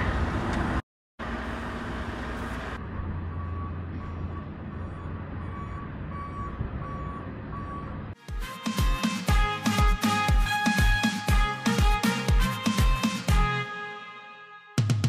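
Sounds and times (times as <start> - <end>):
outdoor noise: 0.0 - 8.2
reversing alarm beeps: 3.3 - 8.0.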